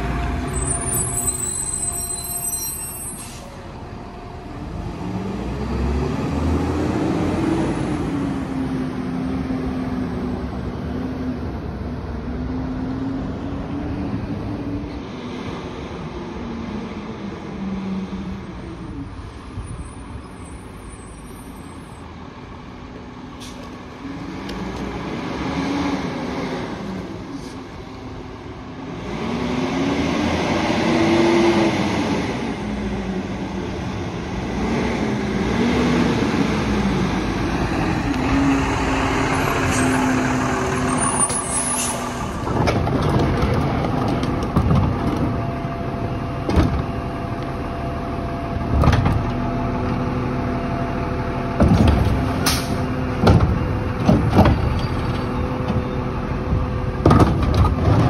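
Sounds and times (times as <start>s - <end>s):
air brakes hissing: 1.2s - 3.6s, 38.6s - 42.6s
garbage truck diesel engine revving: 34.4s - 43.9s.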